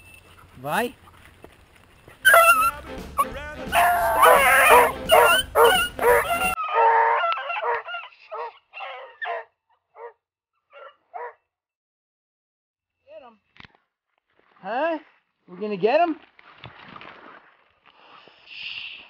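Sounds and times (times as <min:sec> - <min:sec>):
beagles baying: 0:02.0 - 0:10.1.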